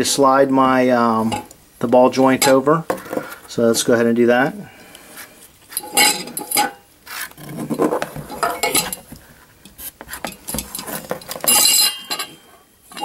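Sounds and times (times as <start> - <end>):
metal parts clinking and scraping: 5.7 - 6.8, 7.4 - 13.0.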